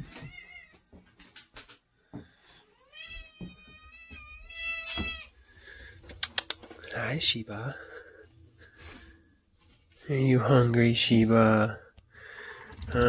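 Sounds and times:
cat meowing: 0:00.0 - 0:00.8, 0:02.7 - 0:05.3.

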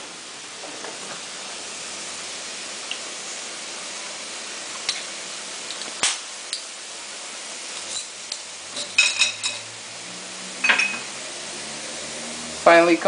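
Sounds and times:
frying hiss: 0:00.0 - 0:13.0
metal tongs clinking on wok: 0:07.8 - 0:09.7, 0:10.6 - 0:11.1.

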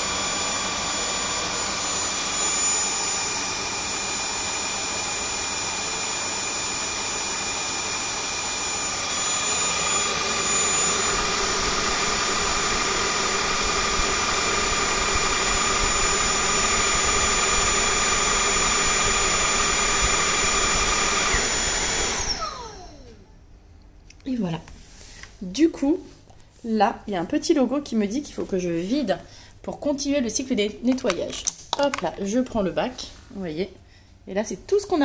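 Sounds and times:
spinning roller brush: 0:00.0 - 0:23.0
vacuum motor whine: 0:00.0 - 0:23.4.

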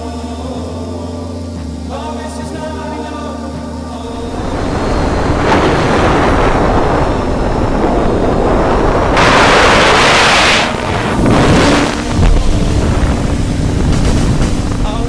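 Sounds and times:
drone motors running: 0:04.0 - 0:15.0
wind rushing over microphone: 0:04.1 - 0:15.0.

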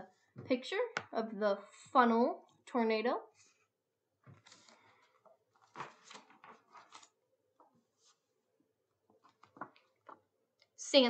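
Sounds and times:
book pages rustling: 0:04.2 - 0:08.4, 0:09.0 - 0:10.3.

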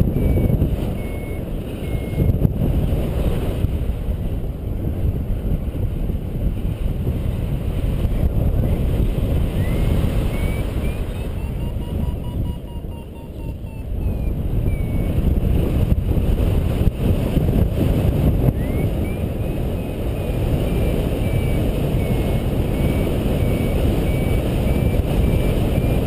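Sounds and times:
variometer high beeps: 0:00.0 - 0:02.4, 0:09.4 - 0:15.4, 0:18.5 - 0:26.0
wind buffeting microphone: 0:00.0 - 0:26.0.

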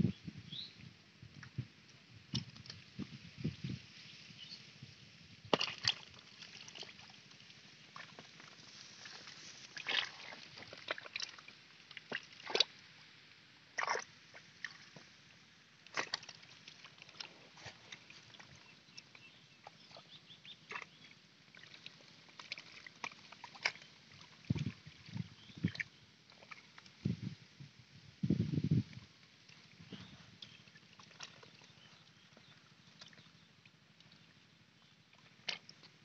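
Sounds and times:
hands splashing in muddy water: 0:05.5 - 0:07.0, 0:09.0 - 0:11.4, 0:15.9 - 0:18.5.

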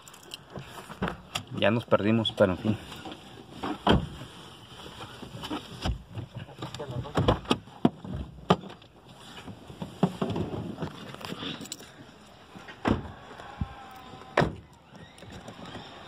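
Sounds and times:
knocks and handling bumps: 0:05.4 - 0:11.8.

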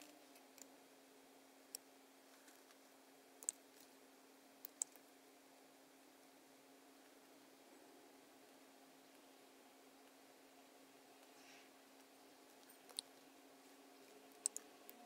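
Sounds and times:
faint steady hum: 0:00.0 - 0:15.0
mouse and keyboard clicks: 0:04.6 - 0:05.0, 0:14.4 - 0:14.7.

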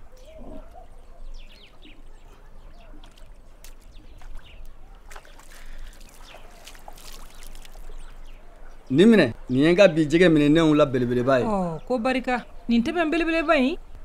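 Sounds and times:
birds chirping: 0:00.0 - 0:14.0
small water splashes: 0:02.3 - 0:08.6
water trickling: 0:02.7 - 0:08.6.

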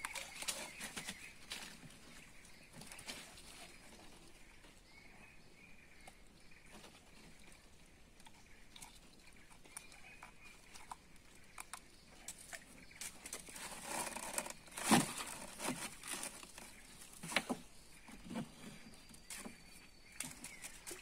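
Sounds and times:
fish and line clicks and rustles: 0:00.0 - 0:01.9, 0:08.2 - 0:17.6
scuffle in canoe: 0:00.0 - 0:04.7, 0:12.4 - 0:21.0.

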